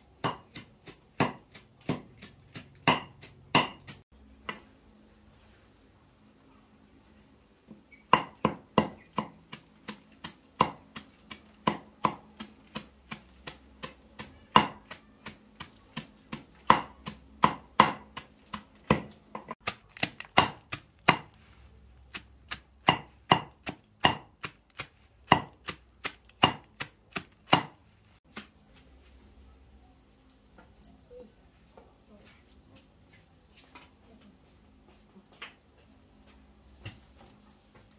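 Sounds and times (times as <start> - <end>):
knife chopping on cutting board: 0.2 - 4.6, 8.1 - 15.0, 15.6 - 21.4, 22.2 - 28.5.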